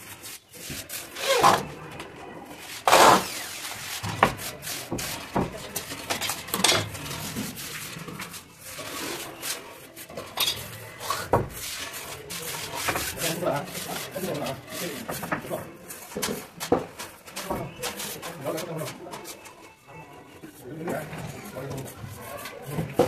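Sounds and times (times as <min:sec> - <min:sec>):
wooden shutter knocking and scraping: 0:02.8 - 0:09.2, 0:10.2 - 0:19.0.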